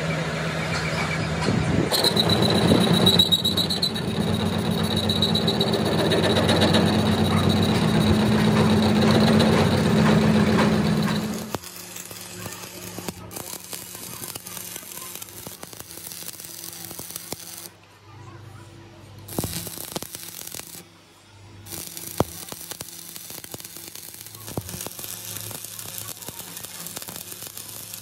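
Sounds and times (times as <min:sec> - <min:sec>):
machine hum: 0:00.0 - 0:16.0
welding arc crackling and hissing: 0:01.9 - 0:17.8, 0:19.2 - 0:20.9, 0:21.6 - 0:28.0.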